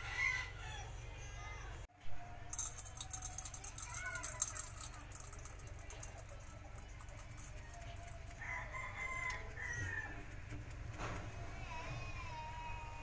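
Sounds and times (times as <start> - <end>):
rooster crowing: 0.0 - 1.0, 8.0 - 10.5.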